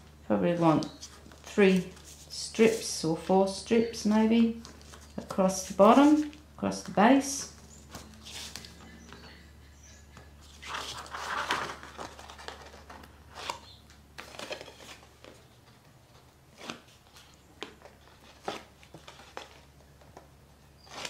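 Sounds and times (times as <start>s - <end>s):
paper rustling and scraping: 1.0s - 3.1s, 4.4s - 6.4s, 7.9s - 8.8s, 10.4s - 13.6s.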